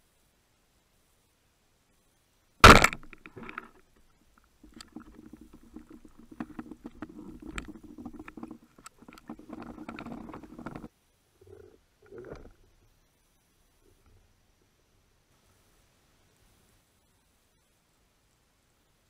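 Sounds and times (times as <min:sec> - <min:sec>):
speargun firing underwater: 0:02.6 - 0:03.7.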